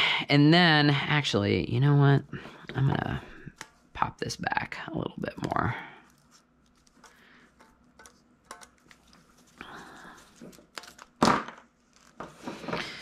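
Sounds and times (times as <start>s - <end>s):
cable stripper clicking and scraping: 6.1s - 9.2s.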